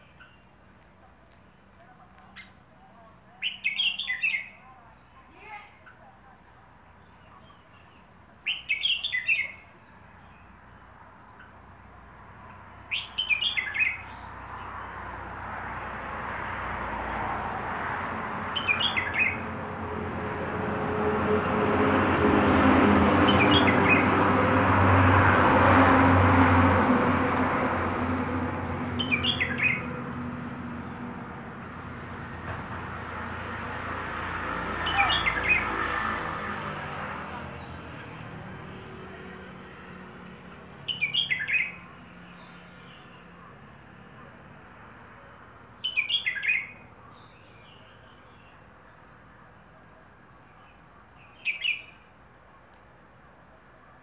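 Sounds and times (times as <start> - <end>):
bird singing bright phrases: 0.0 - 0.6, 2.0 - 11.6, 12.8 - 15.0, 18.5 - 19.5, 23.2 - 24.2, 29.0 - 30.0, 34.8 - 35.7, 40.8 - 43.4, 45.8 - 49.0, 50.4 - 52.1
passing engine: 12.0 - 45.8.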